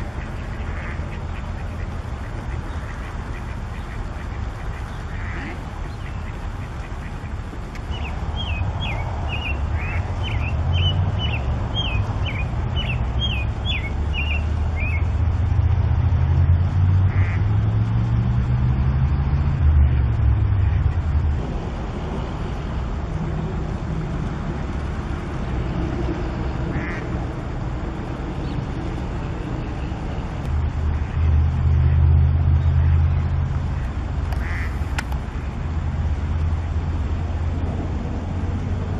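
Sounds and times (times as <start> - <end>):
ducks quacking: 0.0 - 7.4, 17.1 - 17.4, 26.7 - 27.1, 33.8 - 34.8.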